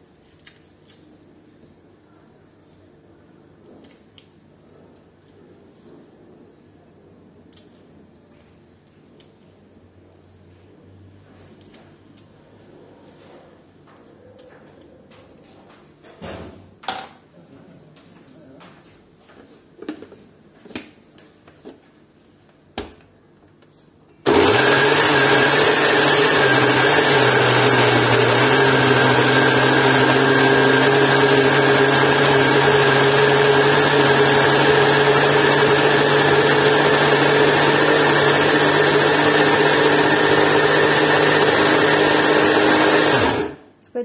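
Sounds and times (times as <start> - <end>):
blender motor running: 24.3 - 43.6.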